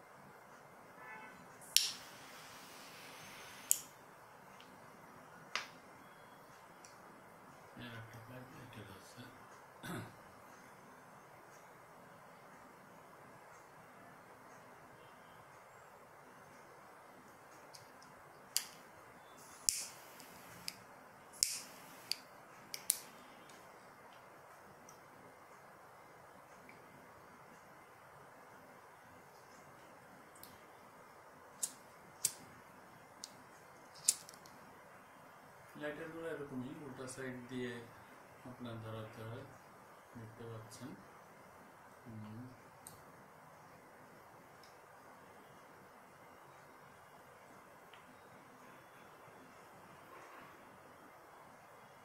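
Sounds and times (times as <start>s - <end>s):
faint gas hiss: 0.9s - 52.0s
lighter gas hiss: 1.6s - 4.0s, 19.4s - 23.6s, 31.6s - 32.6s
lighter clicking: 1.7s - 2.2s, 3.2s - 3.9s, 18.5s - 18.8s, 19.6s - 20.8s, 21.4s - 23.1s, 31.6s - 32.4s, 34.0s - 34.4s.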